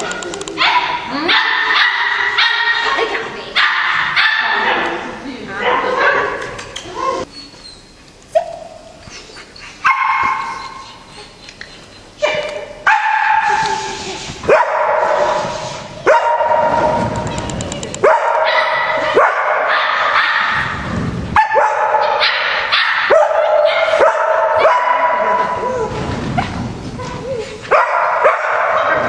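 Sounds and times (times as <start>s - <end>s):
dog barking: 0.6s - 3.0s, 3.6s - 5.0s, 9.8s - 10.6s, 12.2s - 13.8s, 14.5s - 17.0s, 18.0s - 20.7s, 21.4s - 25.6s, 27.7s - 29.0s.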